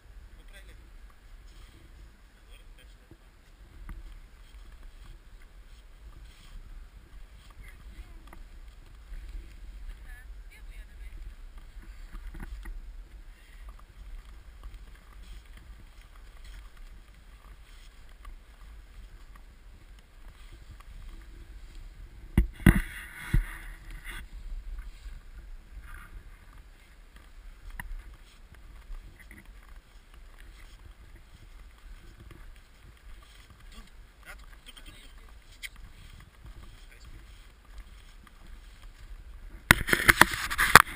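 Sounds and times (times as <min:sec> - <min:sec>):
wind rumble on microphone: 0:00.0 - 0:40.9
faint crunches and clicks: 0:11.0 - 0:40.9.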